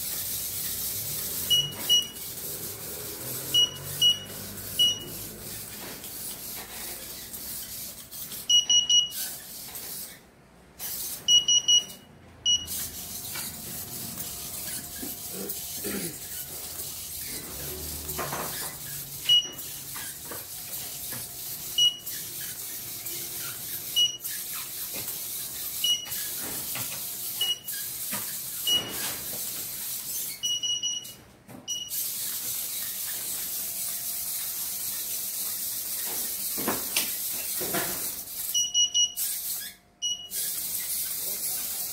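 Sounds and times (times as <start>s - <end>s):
short high electronic beeps: 1.4s - 2.4s, 3.5s - 5.2s, 8.5s - 9.3s, 11.3s - 13.2s, 38.4s - 40.6s.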